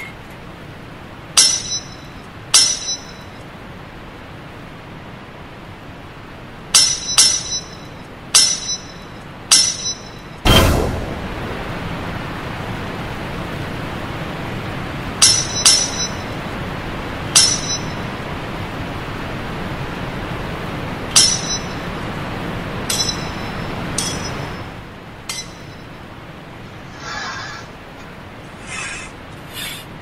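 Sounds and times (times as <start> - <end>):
rushing background noise: 0.0 - 30.0
steel blades clashing: 1.4 - 3.2, 6.8 - 7.8, 8.4 - 11.0, 15.2 - 16.3, 17.4 - 18.1, 21.2 - 21.8, 22.9 - 24.7, 25.3 - 25.7.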